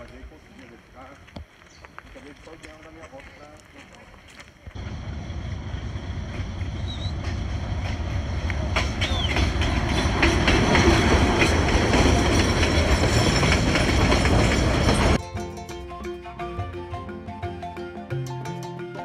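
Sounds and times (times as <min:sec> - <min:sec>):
locomotive engine rumble: 0:04.6 - 0:15.2
train wheels clattering on rails: 0:05.8 - 0:15.2.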